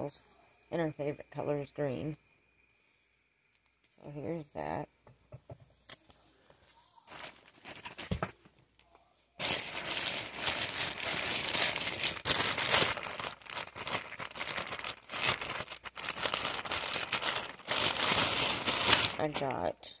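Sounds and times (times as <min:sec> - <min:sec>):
plastic bag crinkling: 0:07.1 - 0:08.3, 0:09.4 - 0:19.8.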